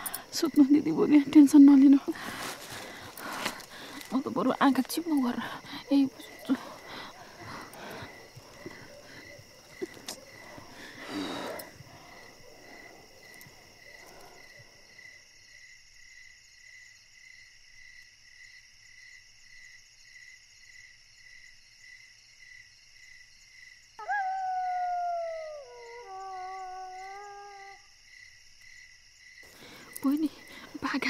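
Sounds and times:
crickets chirping: 0:00.0 - 0:31.0
canine howling: 0:24.0 - 0:27.8.

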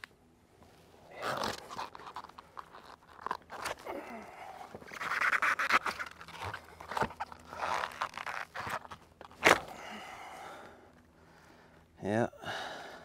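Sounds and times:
rubber scraping against pipe: 0:04.7 - 0:09.6.

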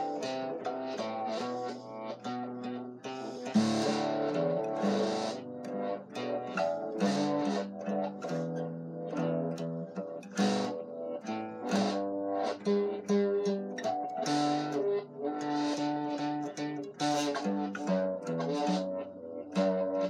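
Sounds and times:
acoustic guitar playing: 0:00.0 - 0:20.0.

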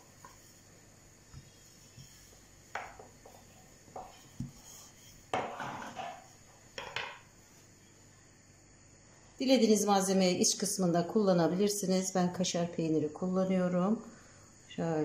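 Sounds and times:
rolling pin rolling dough: 0:00.0 - 0:07.7
rolling pin knocking on table: 0:02.7 - 0:04.6, 0:05.3 - 0:07.2.

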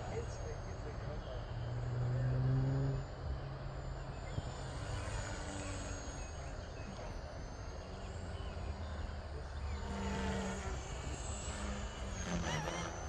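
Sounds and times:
distant model plane motor droning: 0:00.0 - 0:13.0.

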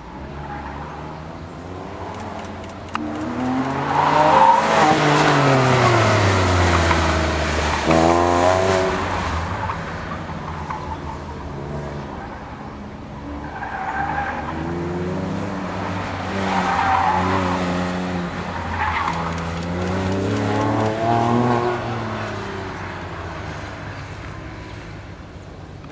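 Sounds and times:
car engine revving: 0:01.6 - 0:09.7, 0:13.6 - 0:22.6.

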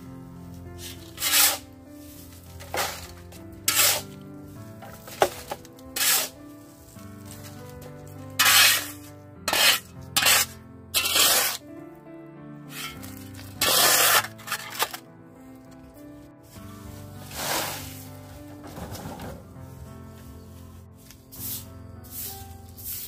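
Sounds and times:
background music: 0:00.0 - 0:23.0
shovel scraping sandy soil: 0:00.8 - 0:07.6, 0:08.3 - 0:11.6, 0:12.7 - 0:15.0, 0:16.5 - 0:19.2, 0:21.0 - 0:23.0.

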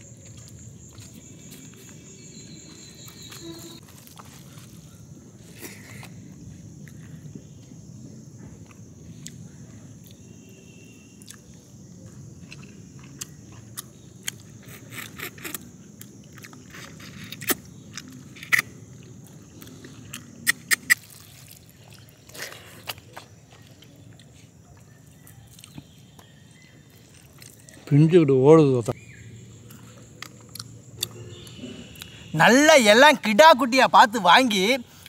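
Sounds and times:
chewing and mouth smacks: 0:29.7 - 0:32.1.

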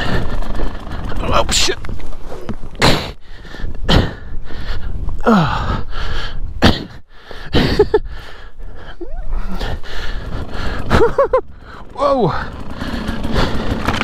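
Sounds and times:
person gasping and grunting: 0:02.8 - 0:13.9.

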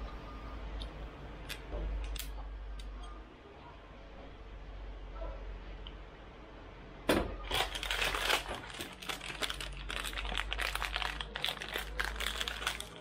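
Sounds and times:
crinkling rustle: 0:07.5 - 0:13.0.

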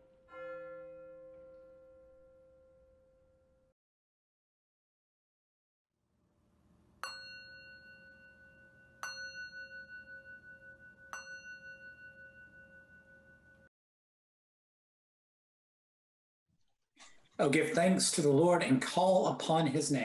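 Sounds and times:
metal singing bowl ringing: 0:00.0 - 0:03.7, 0:07.0 - 0:13.7.

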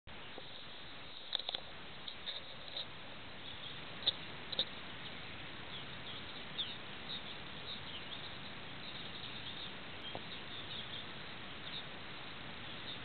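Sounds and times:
small birds chirping: 0:00.1 - 0:13.0
steady hiss: 0:00.1 - 0:13.0.

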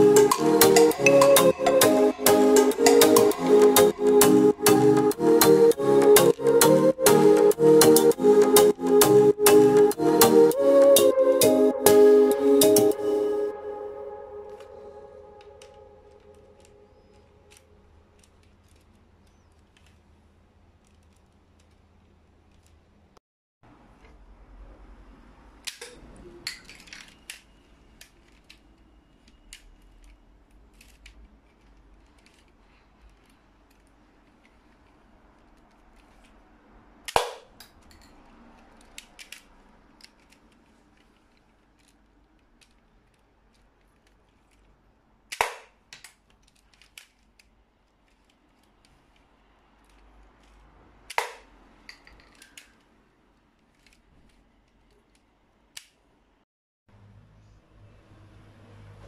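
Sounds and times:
plastic clicks and rattles: 0:25.7 - 0:36.4, 0:38.8 - 0:44.7, 0:45.3 - 0:49.2, 0:49.8 - 0:52.9.

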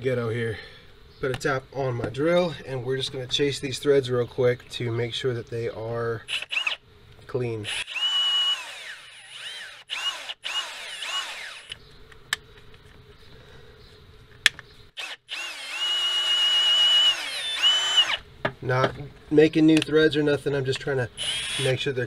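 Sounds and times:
cordless drill motor whining: 0:06.3 - 0:06.8, 0:07.7 - 0:11.8, 0:15.0 - 0:18.2, 0:21.2 - 0:21.8.

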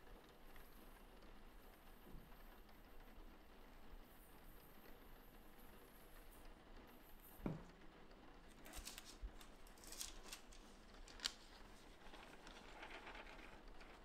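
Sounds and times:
paper crinkling: 0:08.5 - 0:14.0
sharp ticks of paper: 0:08.5 - 0:14.0.

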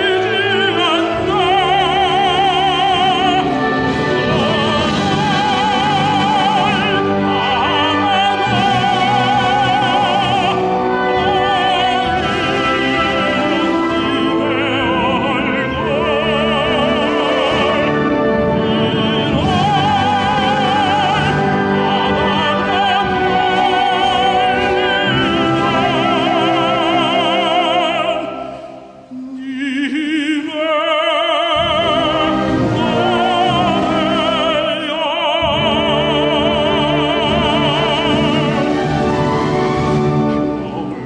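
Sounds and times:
instrumental accompaniment: 0:00.0 - 0:29.4, 0:31.6 - 0:41.0
tenor singing with vibrato: 0:00.0 - 0:41.0.

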